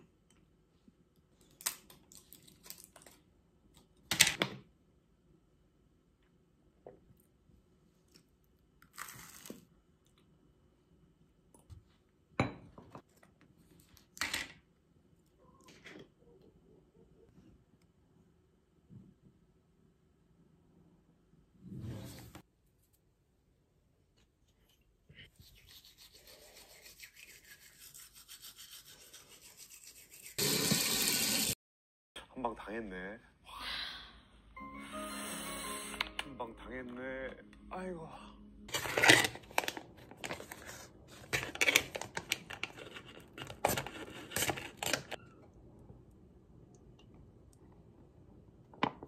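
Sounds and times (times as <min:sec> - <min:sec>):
toothbrush scrubbing teeth: 0:25.2 - 0:30.4.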